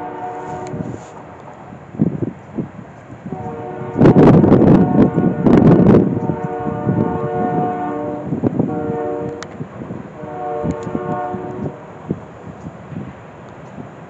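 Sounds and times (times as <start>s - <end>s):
locomotive air horn blasts: 0.0s - 1.3s, 3.2s - 11.9s
low rumble of passing train: 0.0s - 14.0s.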